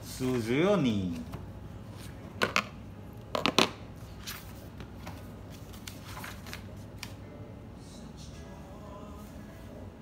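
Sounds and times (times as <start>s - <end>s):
paper rustling: 4.0s - 7.2s.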